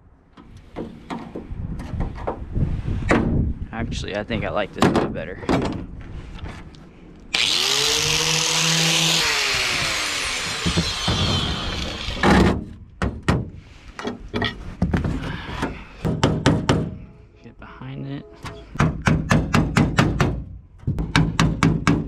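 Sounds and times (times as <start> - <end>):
angle grinder grinding metal: 7.3 - 12.3.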